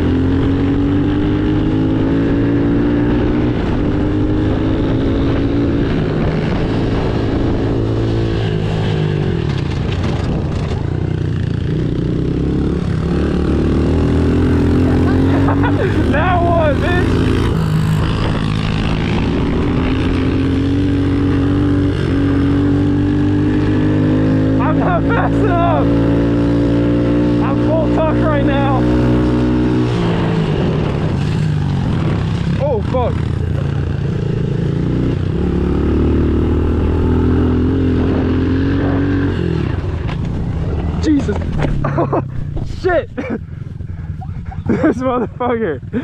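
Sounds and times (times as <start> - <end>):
small motorbike engine running hard: 0.0 - 46.0
wind rush: 0.4 - 12.0, 12.6 - 24.4, 28.8 - 41.5
small motorbike engine running: 9.5 - 23.0, 39.7 - 46.0.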